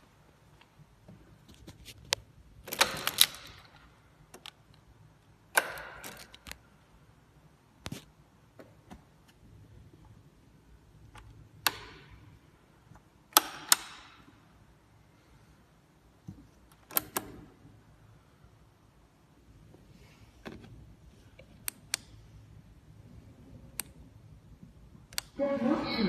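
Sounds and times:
switches being pressed: 0:05.5 - 0:06.6, 0:11.1 - 0:12.4, 0:13.0 - 0:14.3, 0:16.7 - 0:17.5, 0:21.4 - 0:22.2, 0:25.0 - 0:25.4.

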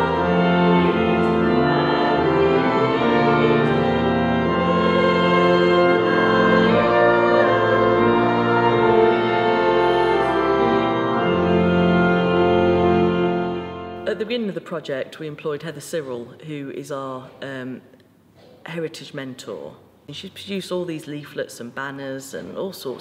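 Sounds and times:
organ playing a slow hymn: 0:00.0 - 0:14.2.

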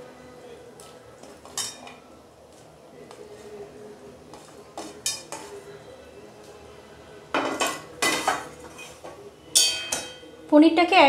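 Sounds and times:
metal spatula clanking on pan: 0:09.6 - 0:10.3.

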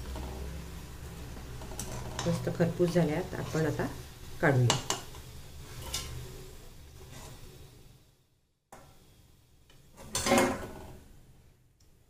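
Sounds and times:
steel spoon scraping in hot oil: 0:00.0 - 0:04.1, 0:04.7 - 0:07.8, 0:09.9 - 0:11.0.

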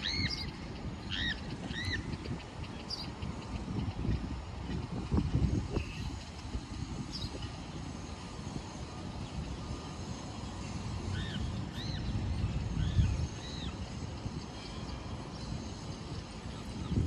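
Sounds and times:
bird chirps: 0:00.0 - 0:03.4
wind rumbling on microphone: 0:00.0 - 0:17.0.

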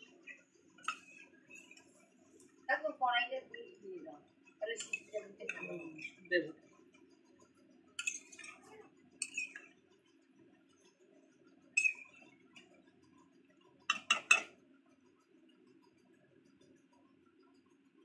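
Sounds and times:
spatula scraping and tapping pan: 0:00.0 - 0:02.6, 0:04.5 - 0:07.1, 0:08.0 - 0:09.8, 0:11.7 - 0:14.6
faint low hum: 0:00.0 - 0:18.0.

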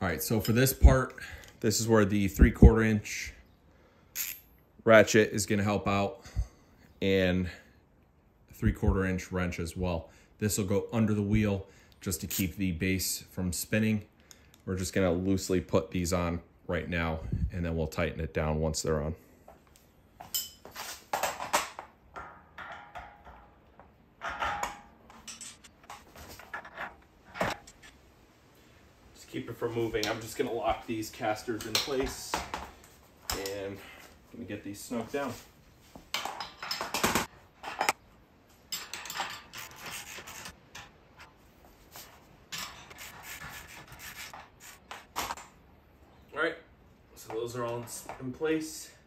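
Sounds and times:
metal clinks and clatter: 0:24.2 - 0:26.0.

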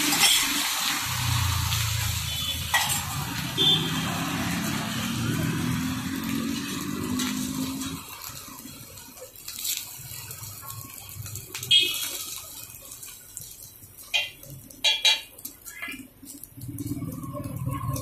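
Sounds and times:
steel spatula scraping griddle: 0:00.0 - 0:01.1, 0:01.8 - 0:05.4
flatbread sizzling in oil on griddle: 0:00.0 - 0:18.0.

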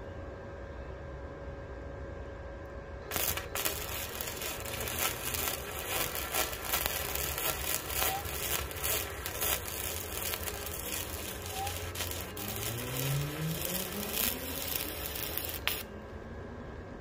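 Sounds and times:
low steady hum: 0:00.0 - 0:17.0
welder arc crackling: 0:03.1 - 0:16.0.

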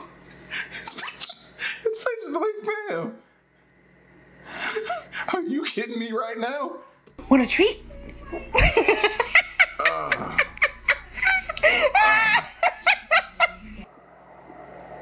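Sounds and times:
person laughing heartily: 0:08.6 - 0:13.8.

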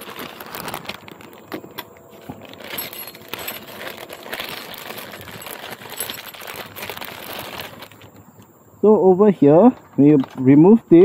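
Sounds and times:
plastic bag crinkling: 0:00.0 - 0:08.5.

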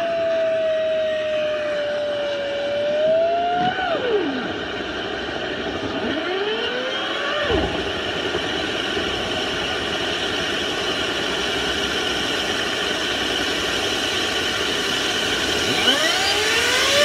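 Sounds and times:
motor whine: 0:01.7 - 0:17.0.

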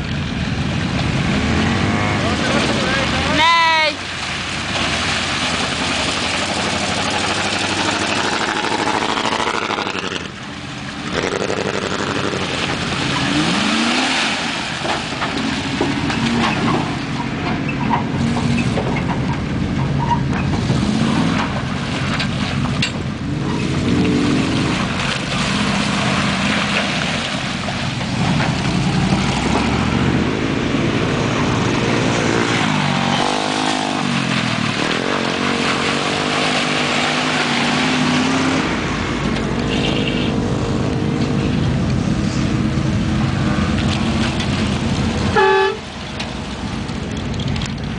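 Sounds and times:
splashing and wheel noise: 0:00.0 - 0:47.9
truck engines revving: 0:00.0 - 0:47.9.

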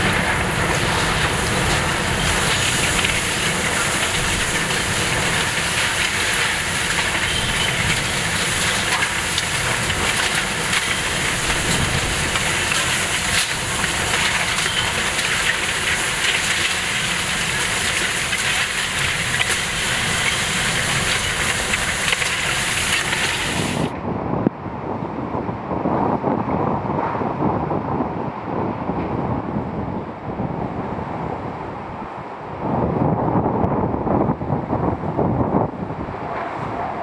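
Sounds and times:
flying debris clicks and knocks: 0:00.0 - 0:23.9
hurricane winds rushing: 0:00.0 - 0:37.0.

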